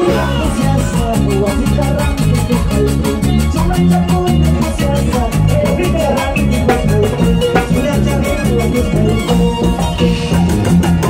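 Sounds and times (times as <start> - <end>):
band bass line: 0.0 - 11.0.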